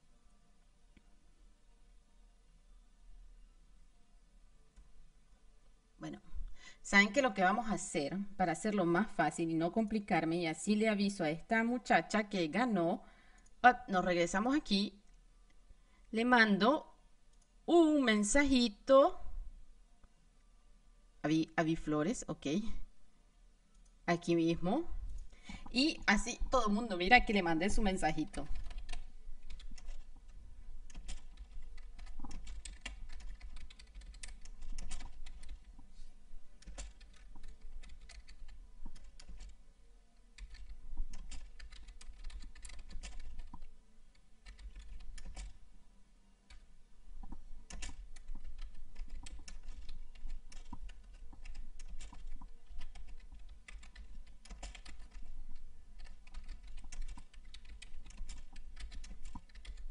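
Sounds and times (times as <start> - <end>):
keyboard typing clicks: 30.9 - 35.8, 36.6 - 39.6, 40.4 - 45.6, 47.2 - 55.3, 56.0 - 59.9.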